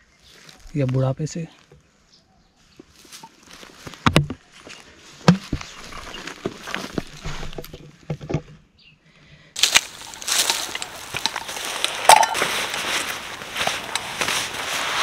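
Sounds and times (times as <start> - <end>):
dry grass rustling: 0.0 - 8.1, 9.6 - 15.0
clicks and knocks of stone and bone: 3.2 - 4.4, 5.2 - 8.6, 9.6 - 14.1.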